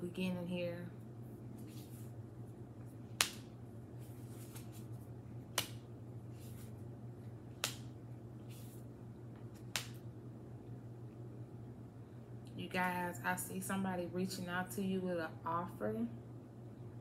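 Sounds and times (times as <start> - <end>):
steady low hum: 0.0 - 17.0
cards sliding and brushing: 1.6 - 2.2, 4.0 - 5.0, 5.6 - 6.8, 8.4 - 8.9
card snaps: 3.2 - 3.5, 5.5 - 5.8, 7.6 - 7.9, 9.5 - 10.0.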